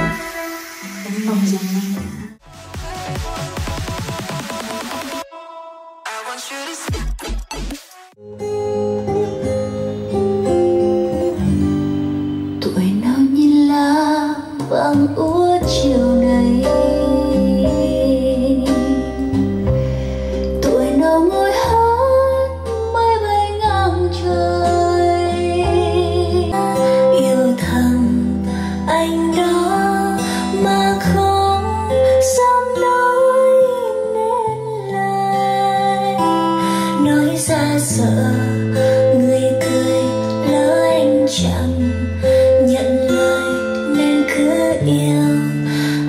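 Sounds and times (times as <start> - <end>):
bass line: 0.0 - 5.2, 14.4 - 26.7
guitar: 0.0 - 46.0
woman singing: 12.6 - 19.7, 20.4 - 46.0.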